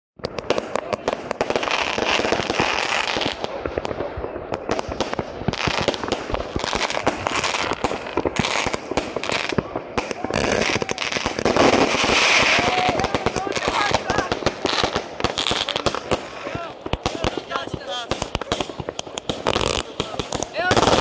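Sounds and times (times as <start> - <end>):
firework hiss: 0.2 - 21.0
fireworks crackling and banging: 0.2 - 21.0.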